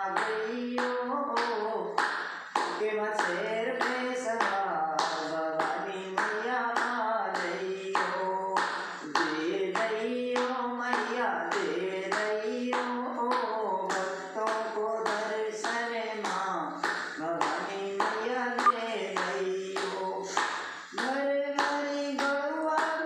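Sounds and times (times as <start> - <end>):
hands clapping: 0.1 - 23.0
man singing unaccompanied: 9.2 - 23.0.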